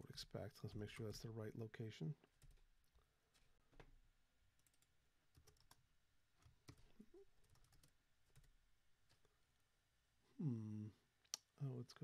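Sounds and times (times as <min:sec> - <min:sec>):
computer keyboard typing: 0:04.6 - 0:05.8, 0:06.4 - 0:09.3.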